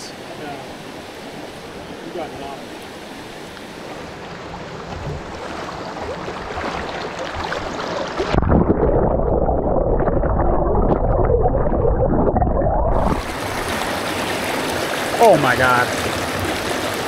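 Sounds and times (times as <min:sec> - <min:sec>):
fast-flowing creek water: 0:00.0 - 0:08.4, 0:13.0 - 0:17.0
muffled underwater gurgling: 0:04.9 - 0:14.0.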